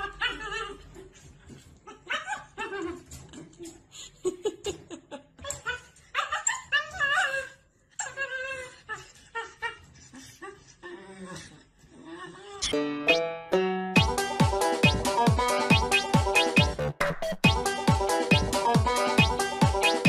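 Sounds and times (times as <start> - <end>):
plucked-string music: 12.6 - 20.0.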